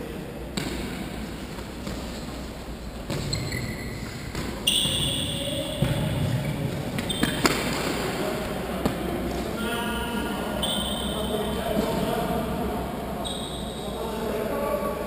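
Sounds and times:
trainers squeaking on hall floor: 1.8s - 7.8s, 9.6s - 12.4s, 13.0s - 14.4s.

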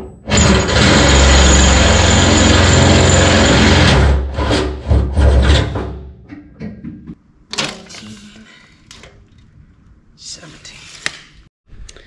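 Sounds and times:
knocks and clatter: 0.0s - 8.1s
power drill boring through steel: 0.3s - 4.0s.

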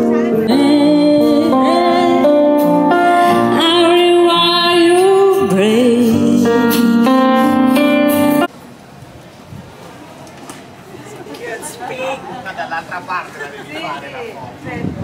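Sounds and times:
instrumental accompaniment: 0.0s - 8.5s
woman singing with vibrato: 0.3s - 8.5s.

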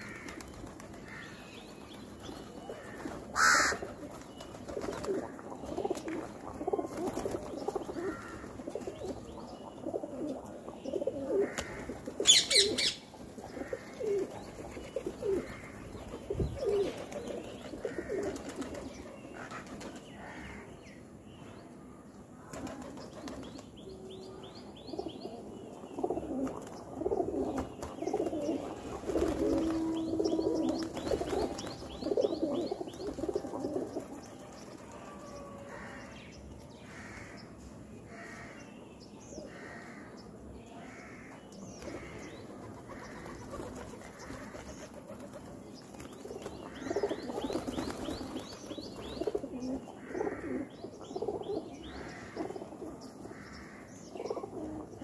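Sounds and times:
wingbeats flapping: 0.0s - 9.2s, 27.5s - 32.2s, 42.6s - 49.4s
pigeons cooing: 2.6s - 19.9s, 24.9s - 34.2s, 46.2s - 53.0s, 54.1s - 55.0s.

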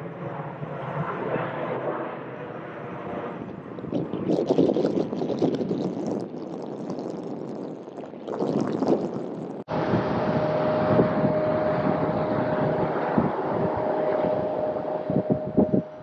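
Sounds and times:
crackling jet engine rumble: 0.0s - 16.0s
steady engine rumble: 9.4s - 16.0s
steady engine whine: 9.6s - 16.0s.

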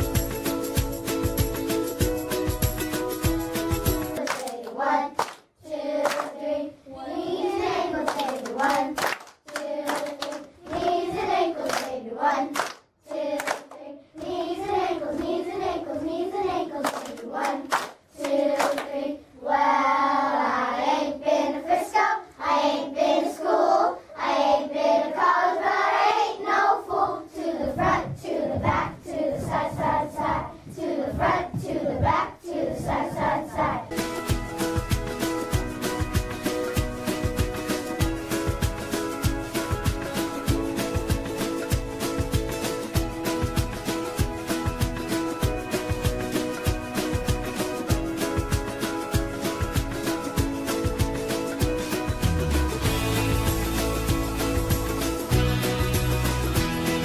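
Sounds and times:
hands clapping: 4.0s - 6.4s, 8.0s - 15.4s, 16.8s - 19.0s
children singing together: 4.1s - 34.0s.

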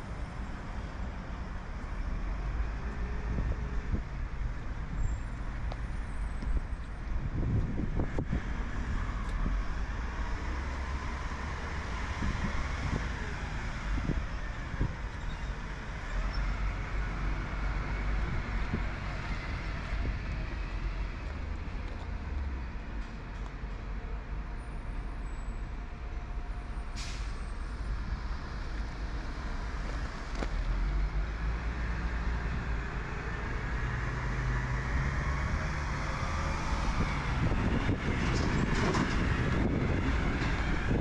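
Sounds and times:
heavy vehicles passing: 0.0s - 41.0s
road traffic rumbling: 0.0s - 41.0s.

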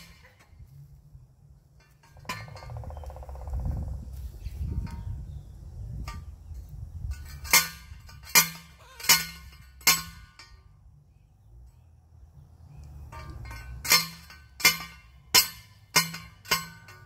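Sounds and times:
sharp metallic clanks: 6.0s - 10.8s, 12.9s - 17.0s.

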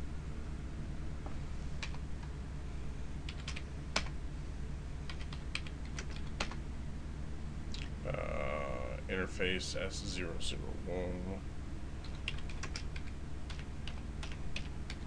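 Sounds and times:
steady low hum: 0.0s - 15.0s
computer keyboard typing: 1.8s - 2.3s, 3.3s - 4.2s, 5.1s - 6.6s, 12.0s - 15.0s.

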